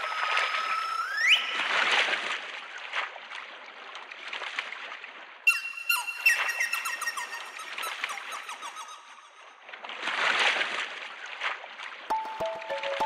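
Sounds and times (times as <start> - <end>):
oar sloshing through water: 0.0 - 5.5, 9.5 - 13.0.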